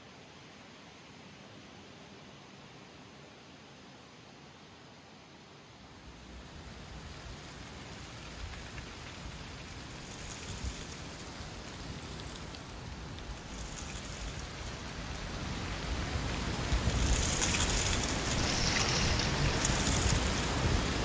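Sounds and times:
wind rustling leaves: 0.0s - 21.0s
wind rumbling on microphone: 6.2s - 21.0s.

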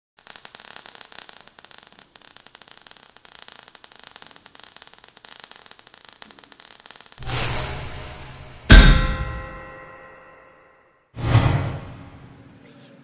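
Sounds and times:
sparks crackling hiss: 0.2s - 9.9s.

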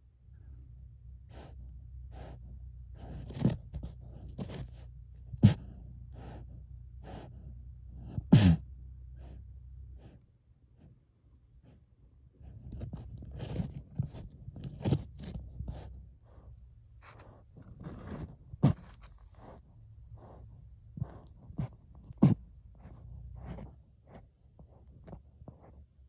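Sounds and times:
low steady hum: 0.0s - 26.0s
marmot sniffing and snorting: 0.4s - 26.0s.

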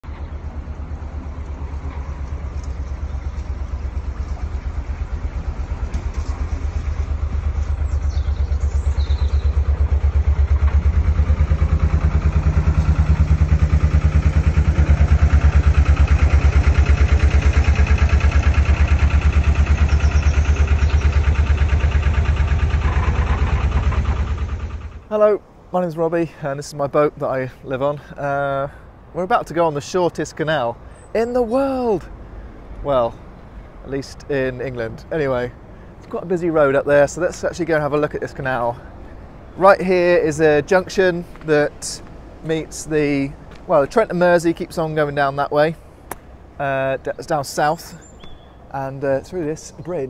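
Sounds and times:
diesel engine chugging: 0.0s - 25.6s.

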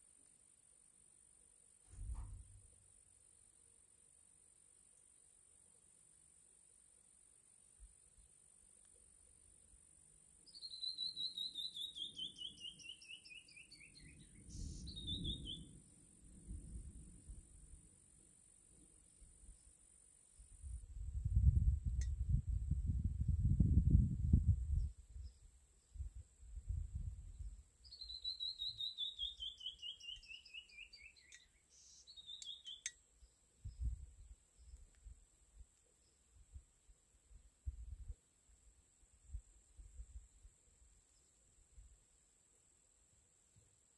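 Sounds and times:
short low rumble: 1.9s - 2.7s
bird whistling notes: 10.5s - 15.7s, 27.9s - 32.9s
bird whistling descending notes: 10.6s - 15.7s.

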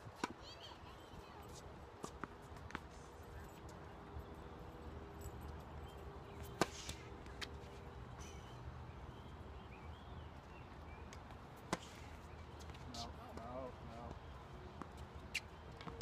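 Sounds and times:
tennis ball struck by rackets: 6.5s - 7.1s.

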